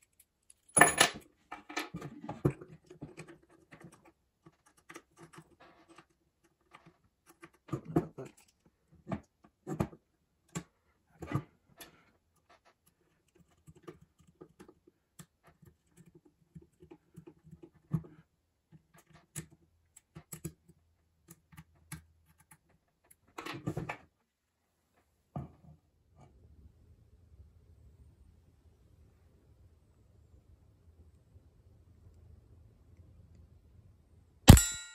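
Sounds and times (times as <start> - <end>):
faint steady low noise: 24.2 - 34.6.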